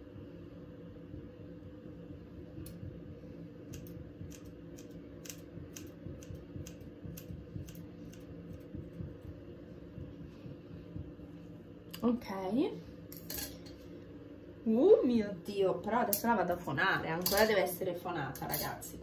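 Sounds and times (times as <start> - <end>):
low steady hum: 0.0 - 19.0
scissors snipping hair: 3.7 - 8.7.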